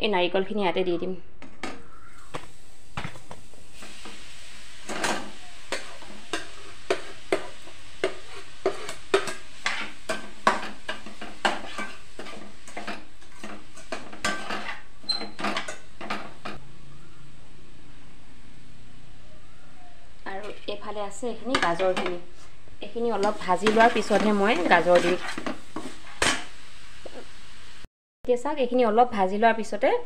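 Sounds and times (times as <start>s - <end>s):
faint sizzle: 0.1s - 30.0s
spatula scraping a pan: 4.8s - 16.6s, 21.4s - 27.3s.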